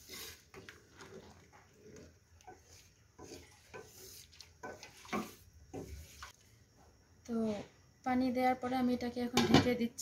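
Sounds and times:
rice and water sloshing in pot: 0:00.0 - 0:06.6.

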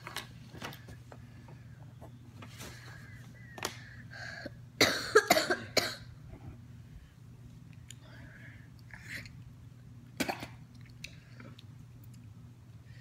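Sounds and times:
low steady hum: 0:00.0 - 0:13.0
boy coughing: 0:04.4 - 0:06.1, 0:10.2 - 0:10.6.

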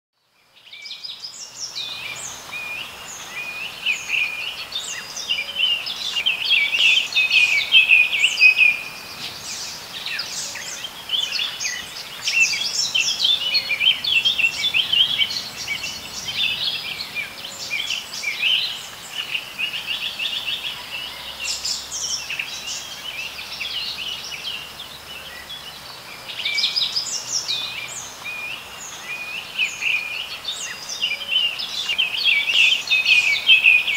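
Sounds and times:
birds chirping and trilling: 0:00.6 - 0:33.9.

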